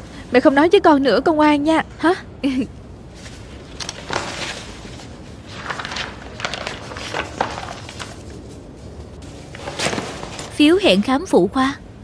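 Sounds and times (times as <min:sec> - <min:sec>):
paper rustling: 0:03.1 - 0:10.7.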